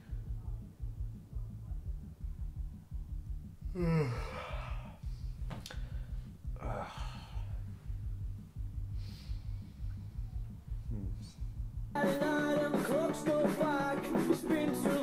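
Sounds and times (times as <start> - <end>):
man sighing and groaning: 3.6 - 7.8.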